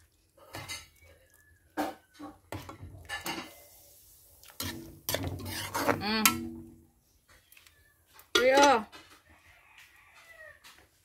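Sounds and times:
metal utensil clinking on wok: 0:04.6 - 0:06.7, 0:08.3 - 0:08.8.

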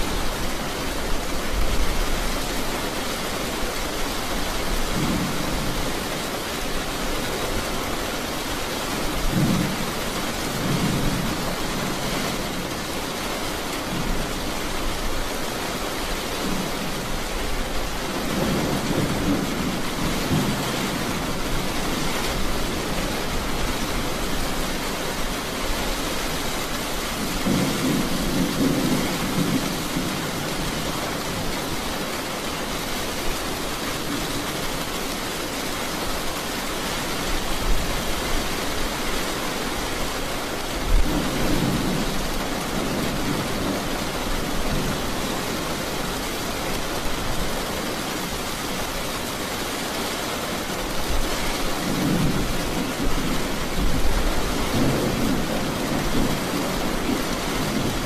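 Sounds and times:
steady rain: 0:00.0 - 0:58.0
rolling thunder: 0:27.2 - 0:30.8.

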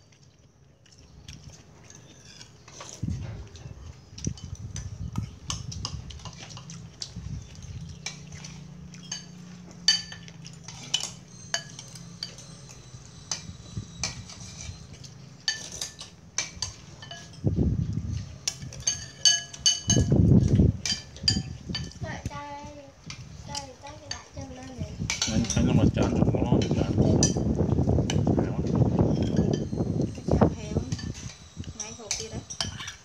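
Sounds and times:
metal spoon clinking on ceramic bowl: 0:09.0 - 0:12.5, 0:15.4 - 0:17.4, 0:18.5 - 0:20.1, 0:20.8 - 0:22.0, 0:29.1 - 0:29.8, 0:30.9 - 0:33.0.

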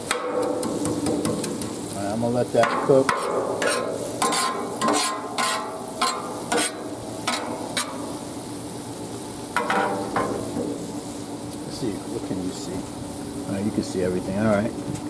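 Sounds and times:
metal spatula scraping griddle: 0:00.0 - 0:08.2, 0:09.6 - 0:10.6
rice sizzling in oil: 0:00.0 - 0:15.0.

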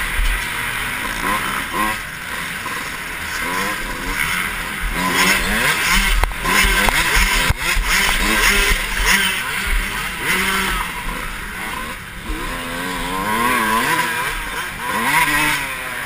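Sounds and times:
dirt bike engine revving: 0:00.0 - 0:16.0.

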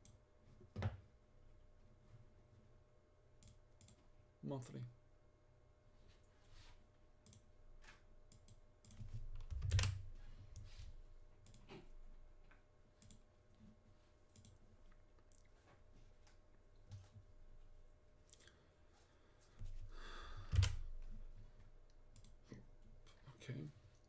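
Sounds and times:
computer mouse clicks: 0:03.4 - 0:04.0, 0:07.2 - 0:07.5, 0:08.3 - 0:10.7, 0:11.4 - 0:11.8, 0:13.0 - 0:13.3, 0:14.3 - 0:14.6, 0:22.1 - 0:22.4.

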